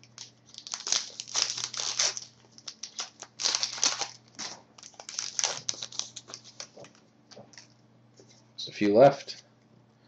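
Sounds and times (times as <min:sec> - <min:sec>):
cards rustling: 0:00.0 - 0:07.7
foil wrapper crinkling and tearing: 0:00.0 - 0:07.7.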